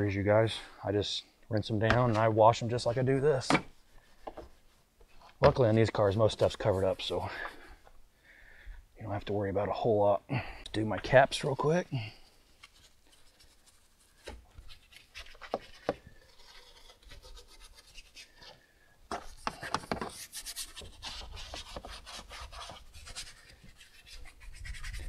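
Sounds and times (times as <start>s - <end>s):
brush scrubbing plastic: 19.4s - 25.0s.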